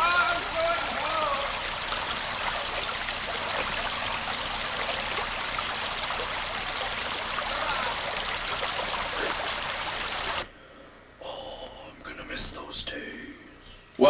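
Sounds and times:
running water: 0.0s - 10.5s.

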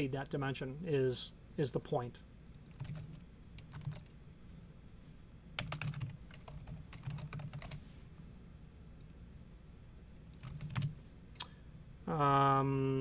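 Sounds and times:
typing on keyboard: 2.6s - 4.1s, 5.6s - 7.8s, 10.3s - 10.9s.

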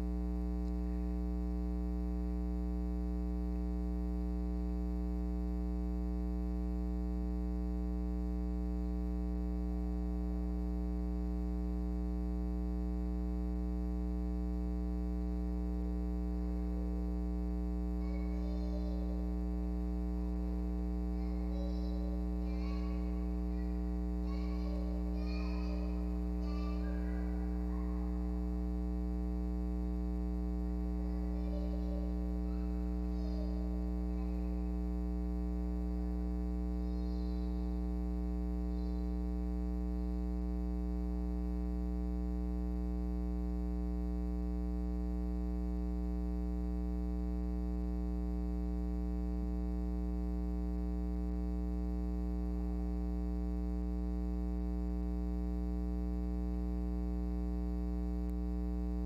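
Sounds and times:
electrical mains hum: 0.0s - 59.0s.

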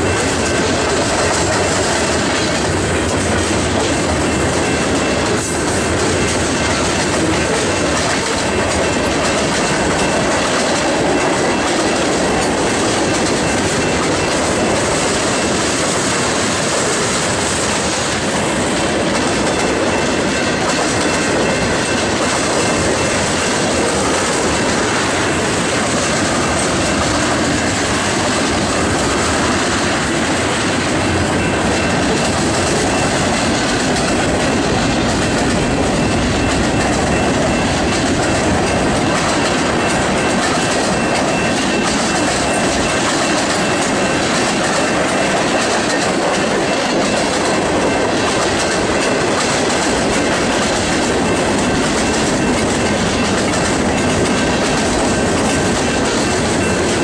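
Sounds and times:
train wheels running on rails: 0.0s - 57.0s.

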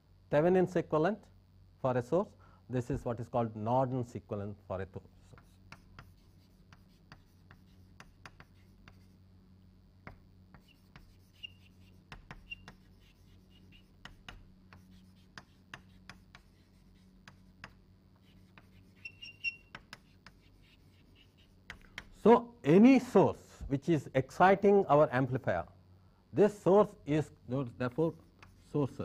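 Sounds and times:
chalk tapping and scratching: 5.2s - 9.2s, 10.0s - 22.2s, 27.9s - 29.0s
chalk squeaks: 5.3s - 9.2s, 10.5s - 22.2s, 27.9s - 29.0s.

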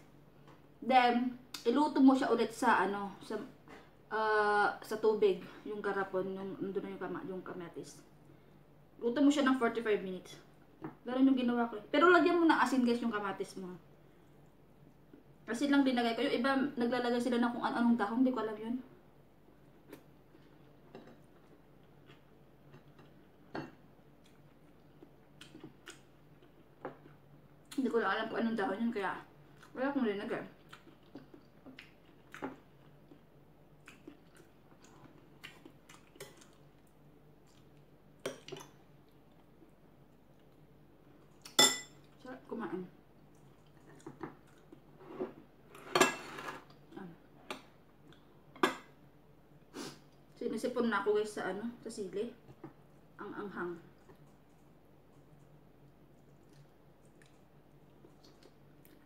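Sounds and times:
person eating rice with hands: 24.2s - 27.3s, 30.6s - 41.6s, 43.2s - 45.0s, 54.0s - 59.0s.

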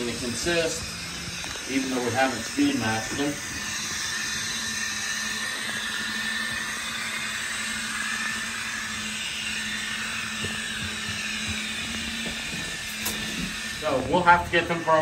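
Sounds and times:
wheels running on rails: 0.0s - 14.9s
low hum: 0.0s - 15.0s
model train motor whir: 0.0s - 15.0s.

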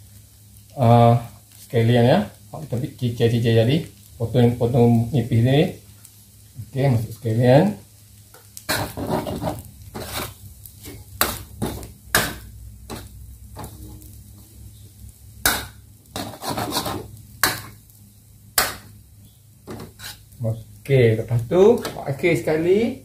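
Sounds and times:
metal spatula scraping wok: 8.7s - 14.1s, 15.5s - 17.8s, 19.7s - 20.4s.

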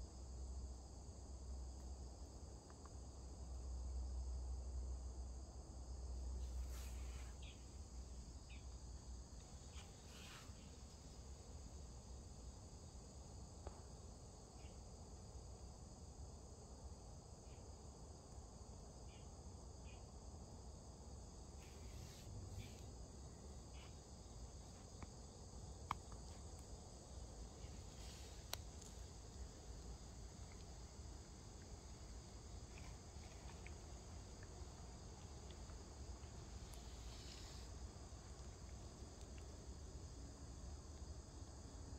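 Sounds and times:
insects chirring: 0.0s - 41.9s
faint ticks: 2.6s - 3.0s, 25.8s - 40.2s.

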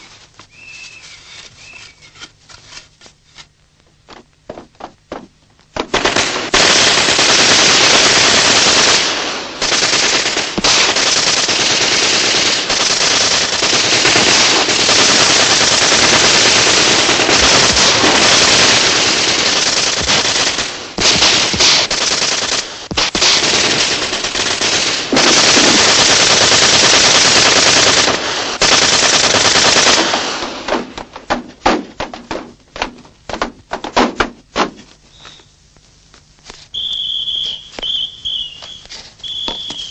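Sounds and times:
automatic gunfire: 4.5s - 32.5s
single gunshots: 4.8s - 12.0s, 13.5s - 24.3s.

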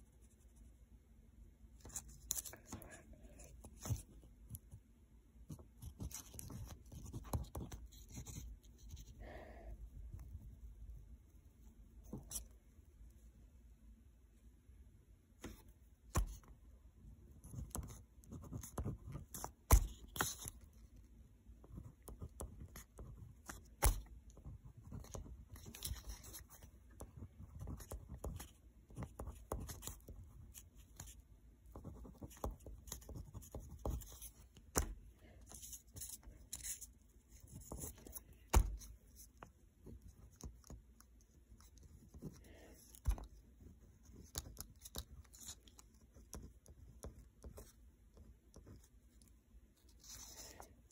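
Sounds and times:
pen scratching on paper: 5.5s - 9.2s, 17.4s - 20.7s, 21.7s - 39.4s, 49.8s - 50.9s.

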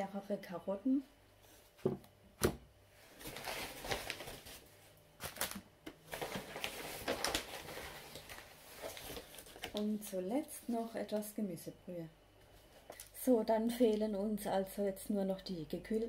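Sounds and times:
food packaging crinkling: 3.2s - 10.1s.

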